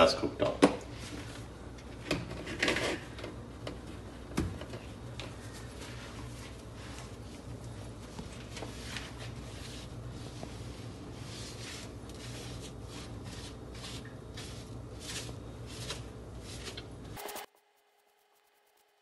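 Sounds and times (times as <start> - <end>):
steady low hum: 0.0 - 19.0
wipe swishing on glass cooktop: 5.4 - 16.9.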